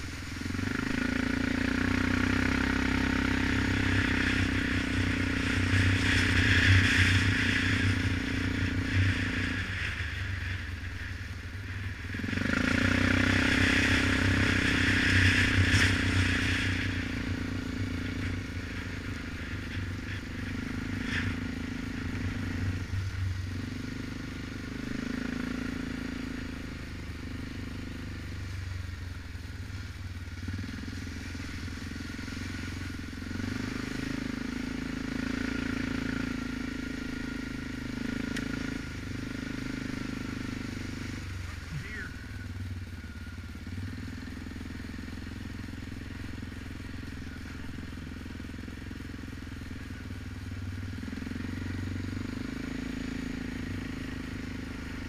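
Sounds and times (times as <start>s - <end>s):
atv engine running: 0.0s - 55.0s.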